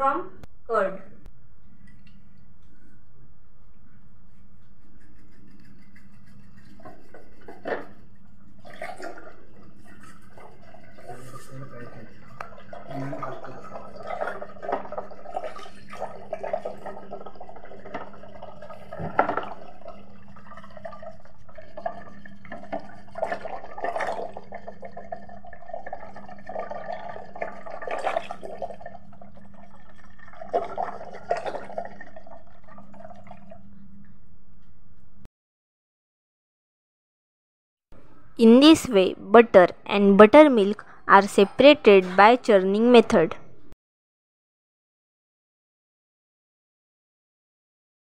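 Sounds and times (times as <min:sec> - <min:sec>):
steady low hum: 0:00.0 - 0:35.3
liquid sloshing and churning: 0:05.2 - 0:33.8.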